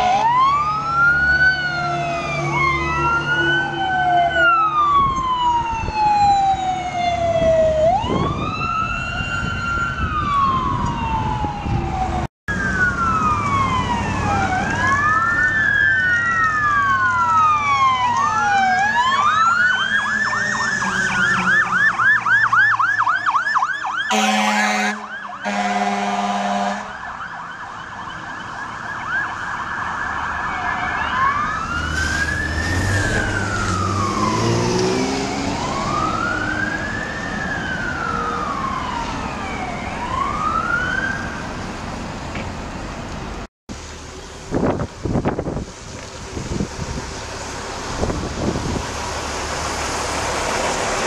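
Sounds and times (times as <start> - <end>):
fire engine siren: 0.0 - 42.2
air horn blasts: 24.1 - 26.9
truck engine rumble: 30.3 - 51.0.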